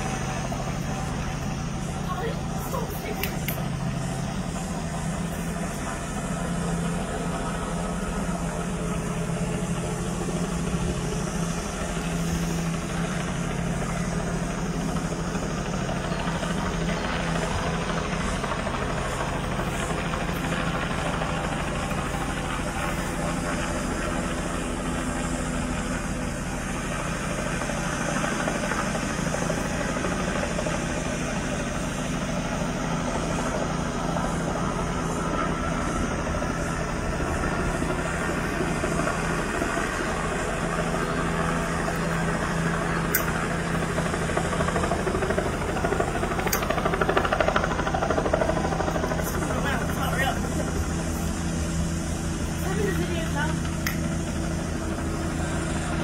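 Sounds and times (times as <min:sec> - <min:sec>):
helicopter rotor chop: 0:00.0 - 0:56.0.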